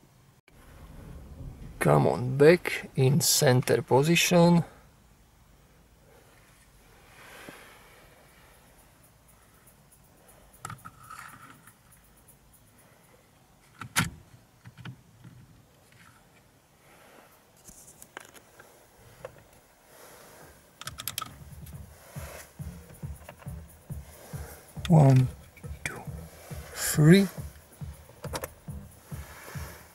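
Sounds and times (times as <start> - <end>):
car parts and tools handled: 10.5 - 12.4, 13.5 - 16.6, 17.5 - 29.9.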